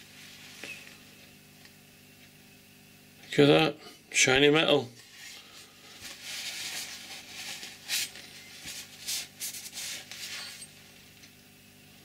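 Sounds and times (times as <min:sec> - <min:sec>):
cloth rubbing metal: 0:06.0 - 0:10.8.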